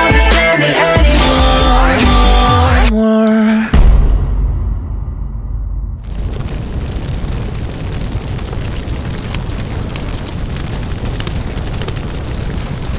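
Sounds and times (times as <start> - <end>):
deep rumble: 3.8 - 12.9
fire crackling and popping: 6.0 - 12.9
roar of flames: 6.0 - 12.9.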